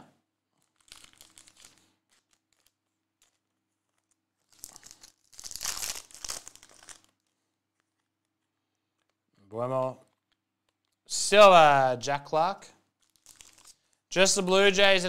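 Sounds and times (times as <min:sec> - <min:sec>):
foil wrapper crinkling and tearing: 0:00.5 - 0:09.2, 0:12.8 - 0:14.1.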